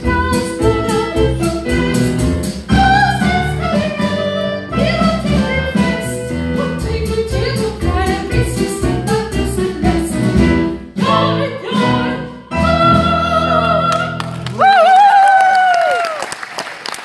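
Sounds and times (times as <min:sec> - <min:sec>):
woman singing operetta: 0:00.0 - 0:02.0, 0:02.7 - 0:14.2
instrumental accompaniment: 0:00.0 - 0:14.4.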